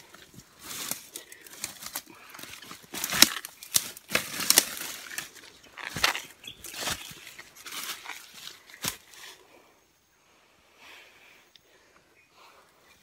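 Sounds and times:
dry leaves and twigs crackling: 0:00.0 - 0:09.7.

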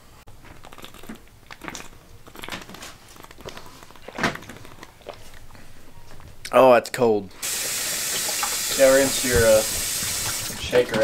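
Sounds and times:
person gulping: 0:00.3 - 0:05.6.

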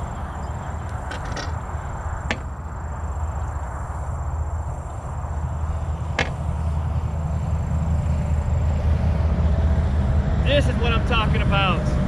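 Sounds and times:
sharp knocks on a boat: 0:02.3 - 0:02.6, 0:06.2 - 0:06.4.

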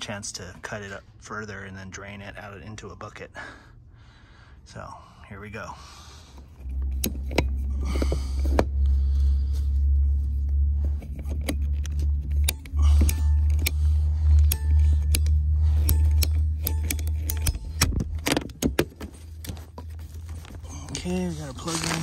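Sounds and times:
loud low rumble: 0:06.5 - 0:18.6
pipe cutter clicking: 0:11.2 - 0:19.8.

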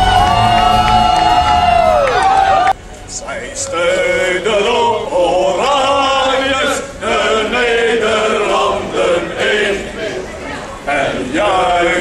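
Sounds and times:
men chanting in unison: 0:03.6 - 0:10.3, 0:10.9 - 0:12.0.

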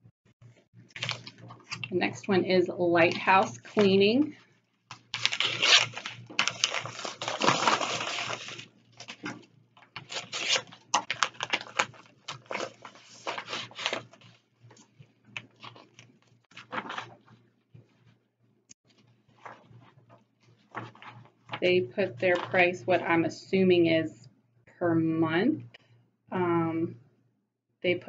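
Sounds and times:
paper rustling and tearing: 0:04.9 - 0:09.4, 0:10.0 - 0:17.3, 0:19.3 - 0:19.9, 0:20.6 - 0:21.3.

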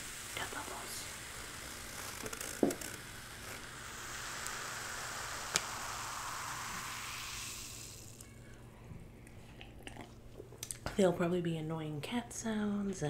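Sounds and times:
soda fizzing in a cup: 0:00.0 - 0:08.4.

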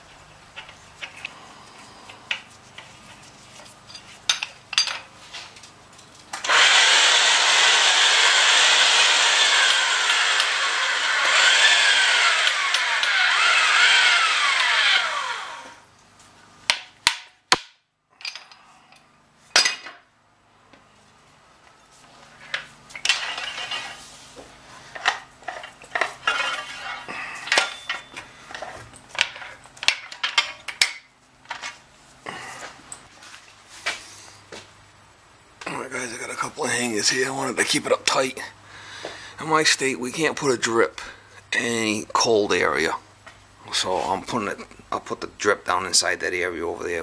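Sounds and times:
pipe threading machine running: 0:06.4 - 0:15.8.

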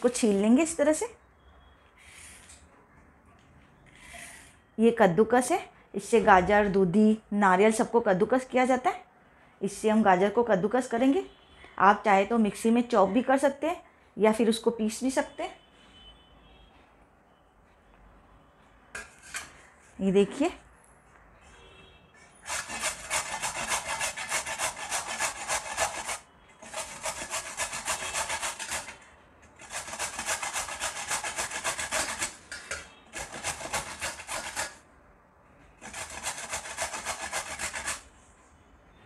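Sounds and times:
carrot grating on metal grater: 0:22.4 - 0:29.0, 0:29.6 - 0:34.8, 0:35.8 - 0:38.1.

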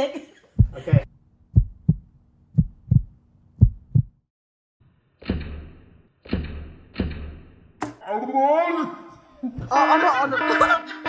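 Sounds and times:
heartbeat thumps: 0:00.6 - 0:04.3.

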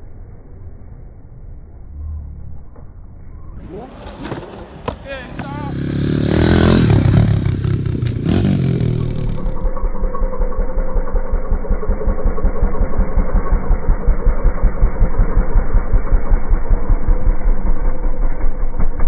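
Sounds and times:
dirt bike engine running: 0:05.2 - 0:19.0.

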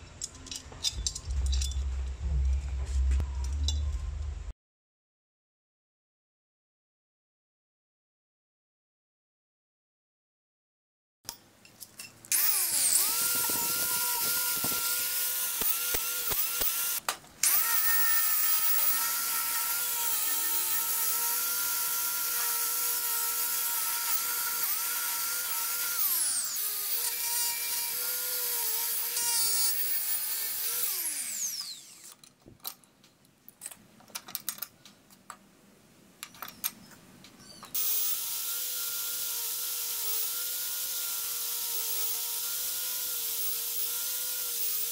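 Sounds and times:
clicks and knocks: 0:00.2 - 0:04.4
angle grinder with wire brush: 0:12.3 - 0:32.2, 0:37.5 - 0:44.9.

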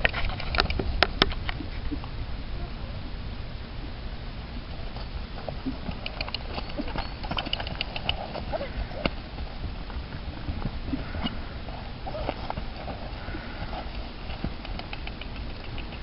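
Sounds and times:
soft hoofbeats on grass: 0:04.7 - 0:16.0
sharp clicks: 0:05.8 - 0:08.4, 0:13.8 - 0:16.0.

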